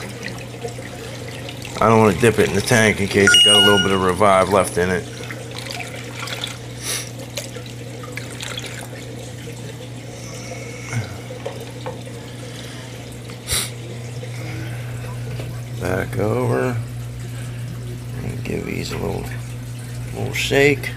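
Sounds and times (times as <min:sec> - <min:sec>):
water filling plastic container: 0:04.1 - 0:10.1.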